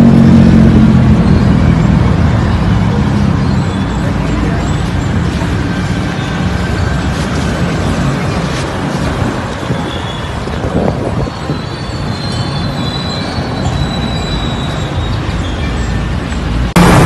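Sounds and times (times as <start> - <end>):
bicycle rumbling: 0.0 - 17.0
wind on microphone: 5.1 - 12.8.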